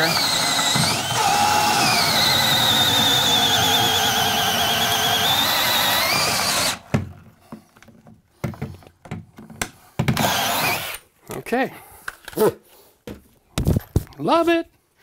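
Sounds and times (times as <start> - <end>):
cordless drill whining under load: 0.0 - 6.9, 10.2 - 11.0.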